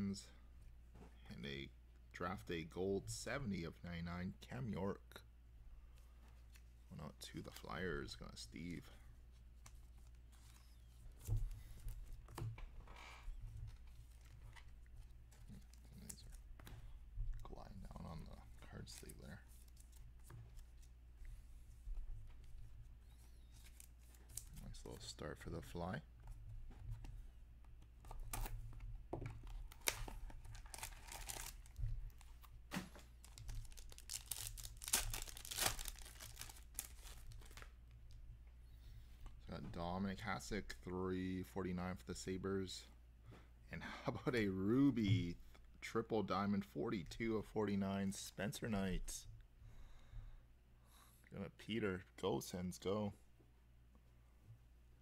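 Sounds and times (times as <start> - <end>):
plastic sleeve rustle: 29.5 - 37.8
card pack wrapper tearing: 29.7 - 31.8, 33.2 - 37.7.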